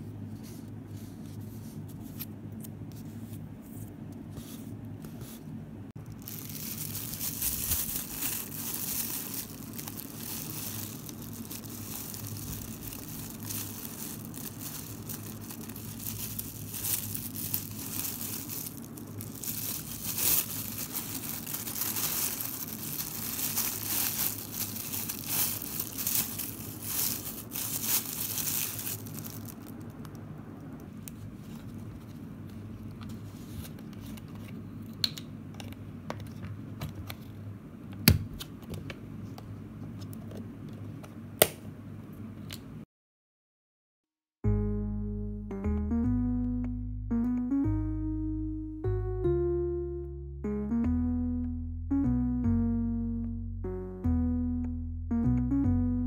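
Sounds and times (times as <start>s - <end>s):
plastic bag crinkling: 6.0s - 30.1s.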